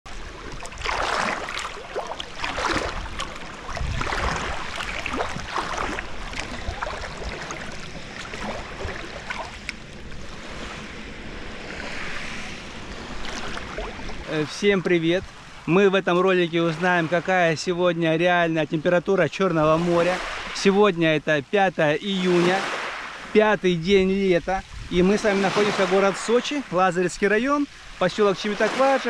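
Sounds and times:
low wind rumble on microphone: 0:00.1 - 0:15.7, 0:23.2 - 0:25.4
water splashing and sloshing: 0:00.1 - 0:29.0.

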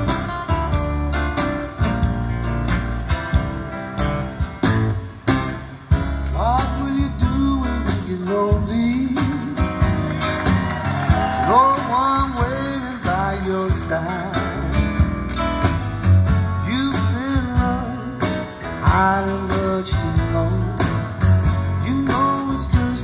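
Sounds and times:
song through speakers: 0:06.0 - 0:23.0.

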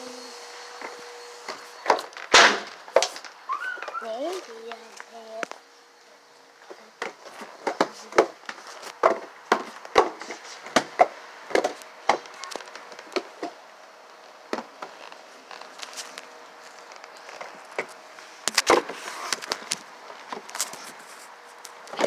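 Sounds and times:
sharp wooden knocks and clatter: 0:01.9 - 0:03.3.

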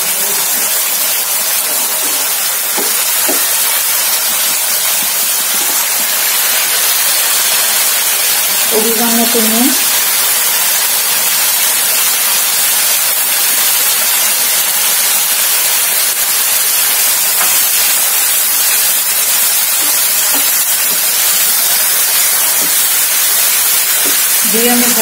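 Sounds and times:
paste sizzling in hot oil: 0:00.0 - 0:25.0.

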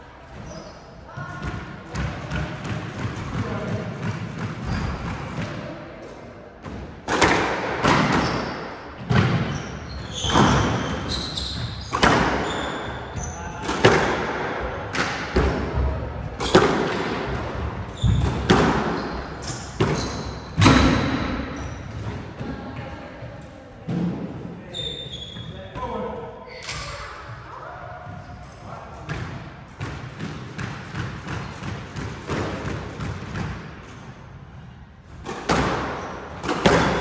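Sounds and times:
squash ball hits echoing: 0:01.1 - 0:22.9, 0:23.8 - 0:24.5, 0:29.0 - 0:34.2, 0:35.0 - 0:37.0
shoes squeaking on wooden floor: 0:09.5 - 0:13.4.

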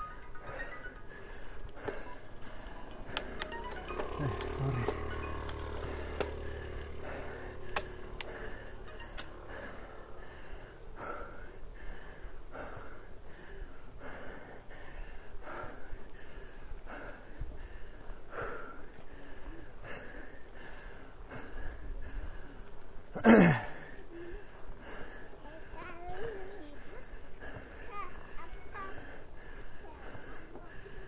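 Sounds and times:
cyclist breathing hard: 0:00.0 - 0:31.0
background music: 0:02.0 - 0:10.2
sharp clicks: 0:03.0 - 0:06.7, 0:07.7 - 0:09.8.

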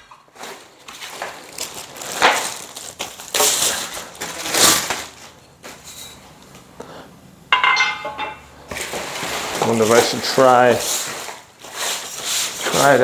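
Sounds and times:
packing wrap crackling: 0:00.3 - 0:05.9, 0:08.7 - 0:13.0.

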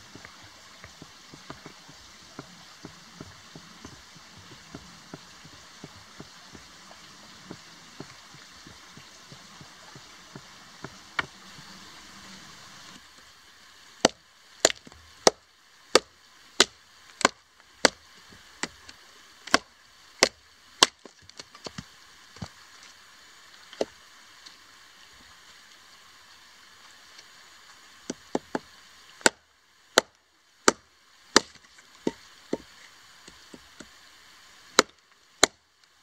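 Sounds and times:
machete chopping wood: 0:16.0 - 0:18.0, 0:31.4 - 0:32.7, 0:34.8 - 0:35.6.

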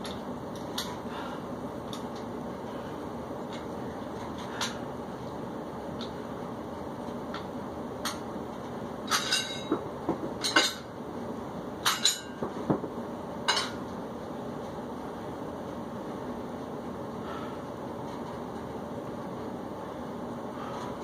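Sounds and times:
steady background hum: 0:00.0 - 0:21.0.

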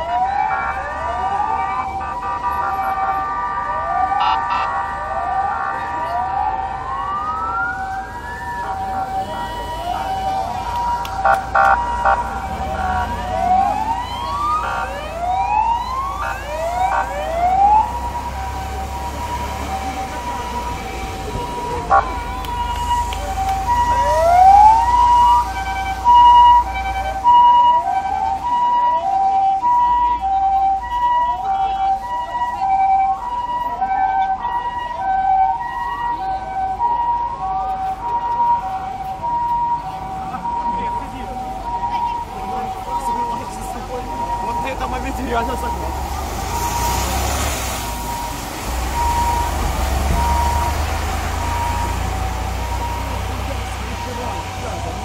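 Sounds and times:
steady siren tone: 0:00.0 - 0:47.0, 0:47.8 - 0:55.0
police sirens whooping: 0:00.0 - 0:55.0.

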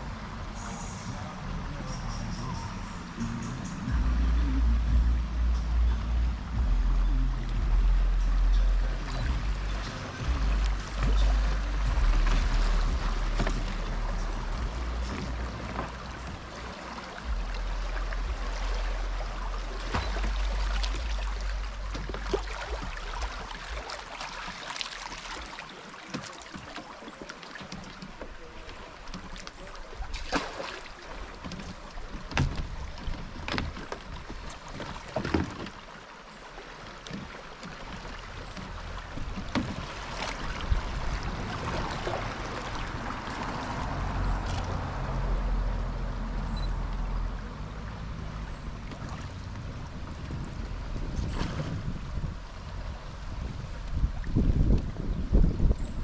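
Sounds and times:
low rumble on microphone: 0:00.0 - 0:25.6, 0:38.1 - 0:56.0
water lapping and splashing: 0:00.0 - 0:56.0.

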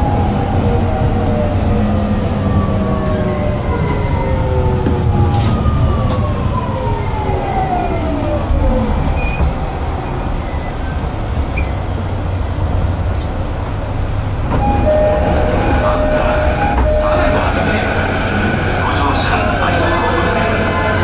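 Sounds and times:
wheel and rail rumble: 0:00.0 - 0:21.0
electric train inverter whine: 0:14.5 - 0:21.0.

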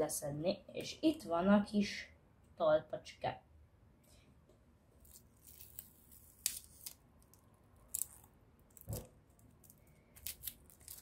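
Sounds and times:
plastic film crackling: 0:05.0 - 0:11.0.

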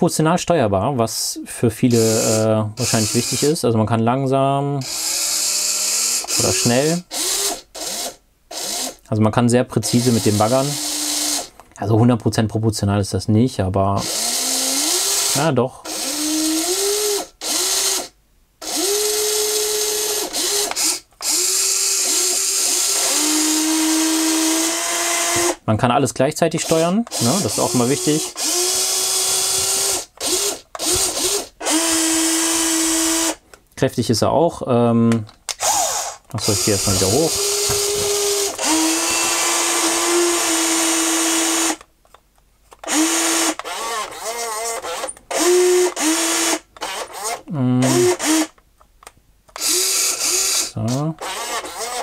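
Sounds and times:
toy excavator motors whining: 0:01.9 - 0:03.5, 0:04.8 - 0:09.0, 0:14.0 - 0:25.6, 0:26.6 - 0:33.3, 0:35.5 - 0:41.9, 0:42.8 - 0:48.6, 0:49.6 - 0:52.0
electric motors whining: 0:35.6 - 0:41.8, 0:49.6 - 0:52.0.

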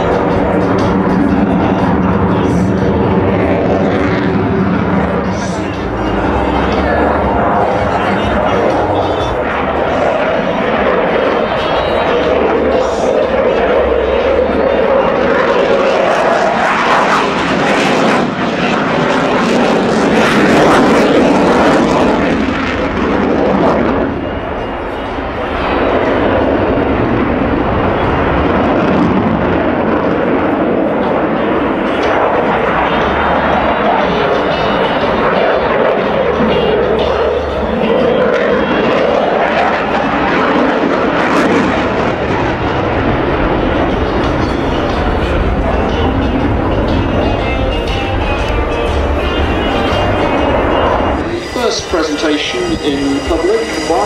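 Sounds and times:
jet engines roaring: 0:00.0 - 0:54.0.

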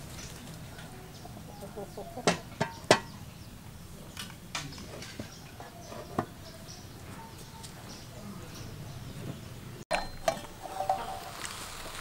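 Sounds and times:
metal pot knocking: 0:02.2 - 0:03.1
pot lid clinking: 0:09.9 - 0:11.3.

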